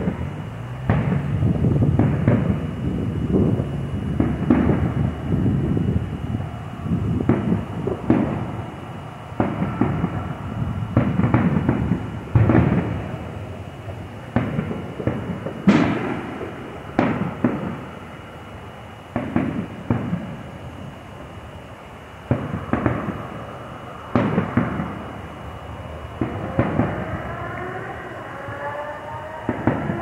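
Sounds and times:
fireworks booms and cracks: 0.0 - 18.0, 19.1 - 21.4, 22.2 - 25.6, 26.2 - 27.8, 29.4 - 30.0
low rumbling: 0.0 - 18.1.

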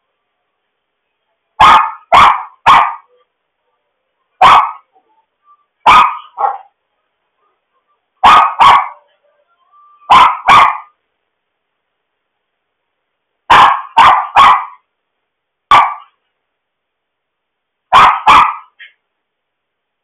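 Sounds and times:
small dog barking: 1.6 - 3.1, 4.4 - 4.9, 5.8 - 6.8, 8.2 - 9.1, 10.0 - 11.0, 13.5 - 14.9, 15.7 - 16.2, 17.9 - 19.0.

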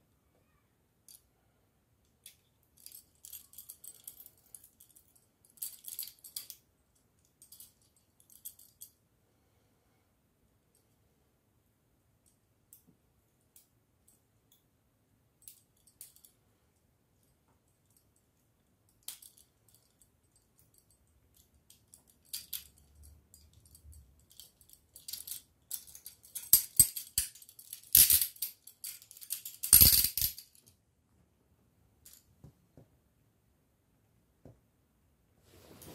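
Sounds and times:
handcuff clicking and rattling: 2.0 - 9.0, 15.4 - 16.4, 18.9 - 30.7.

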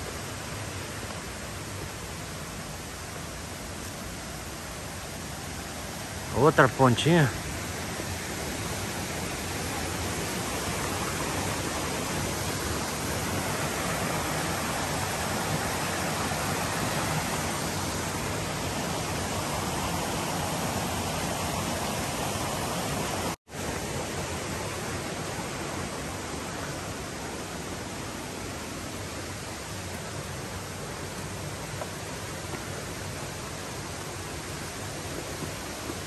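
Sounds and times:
stream running over rocks: 0.0 - 36.0.

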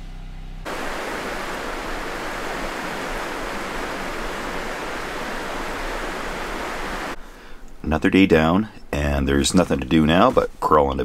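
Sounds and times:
steady rushing noise: 0.7 - 7.2.

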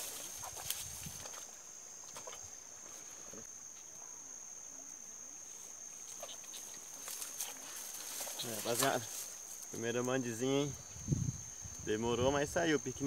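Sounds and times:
rustles: 0.0 - 4.0, 5.4 - 12.6.

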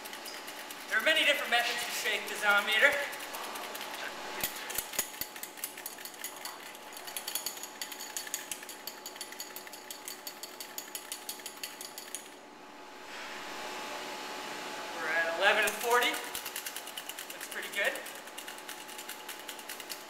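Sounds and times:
metal parts rattling: 2.3 - 12.3.

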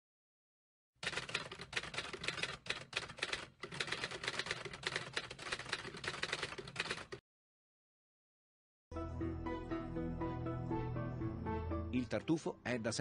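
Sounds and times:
typewriter keys clacking: 1.0 - 7.2.

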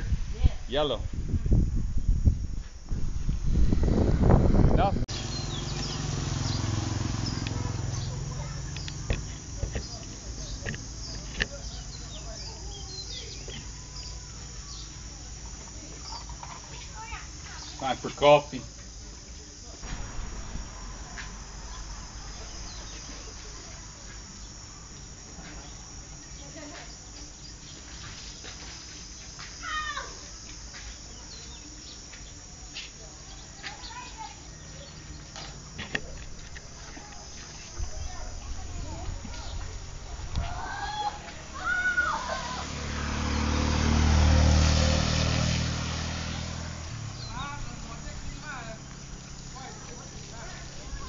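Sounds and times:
faint outdoor background noise: 0.0 - 51.0
insects chirring drone: 0.0 - 51.0
motorcycle engine passing: 3.4 - 18.4, 19.8 - 24.7, 40.9 - 51.0
voices: 3.5 - 51.0.

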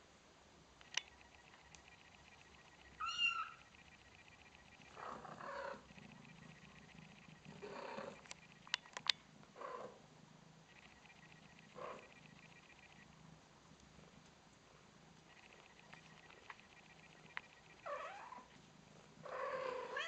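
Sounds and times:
sharp clicks: 0.8 - 3.0, 8.2 - 9.2, 15.3 - 17.8
cat purring: 4.2 - 8.7, 9.4 - 20.0.

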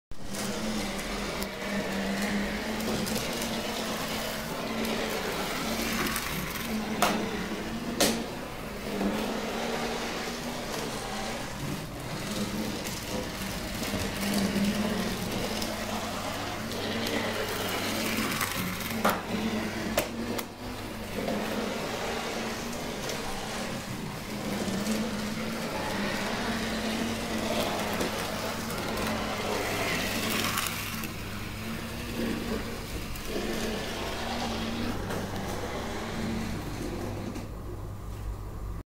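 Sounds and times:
model train motor running: 0.2 - 37.4.

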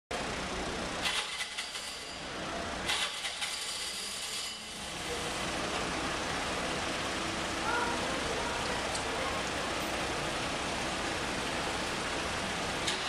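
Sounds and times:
low street rumble: 0.1 - 13.0
rapid rattling clicks: 2.9 - 3.9.

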